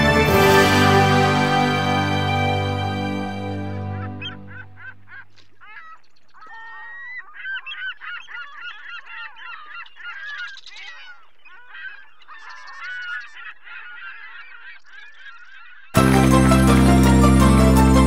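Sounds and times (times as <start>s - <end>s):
flock of birds calling: 3.0s - 16.0s.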